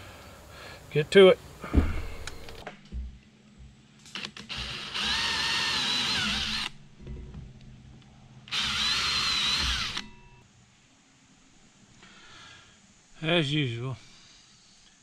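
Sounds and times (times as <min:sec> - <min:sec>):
cordless drill motor whine: 0:04.2 - 0:06.8, 0:08.5 - 0:10.4.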